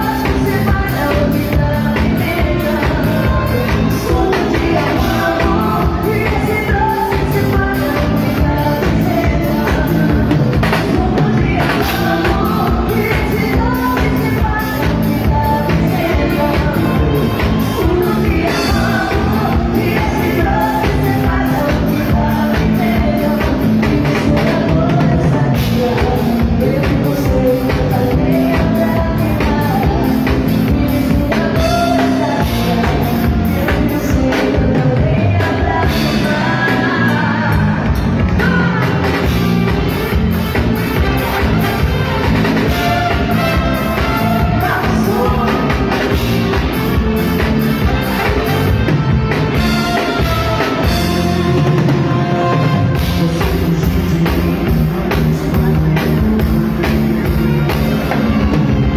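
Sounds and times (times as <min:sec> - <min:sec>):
drum kit beat: 0:00.0 - 0:58.9
electric bass: 0:00.0 - 0:58.9
guitars: 0:00.0 - 0:58.9
live dance band playing: 0:00.0 - 0:58.9
woman singing: 0:00.0 - 0:58.9
trumpet section: 0:39.5 - 0:53.3
man singing: 0:42.6 - 0:46.6, 0:49.6 - 0:58.6.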